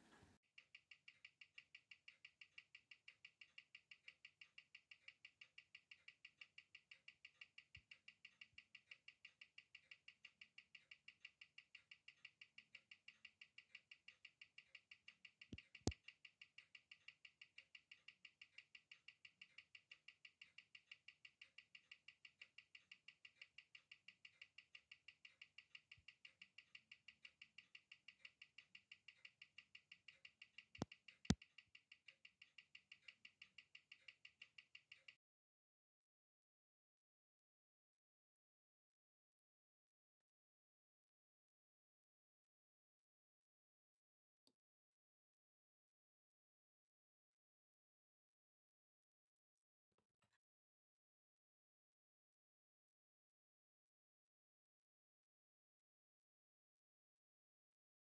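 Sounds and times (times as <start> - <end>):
watch ticking: 0.6 - 35.2.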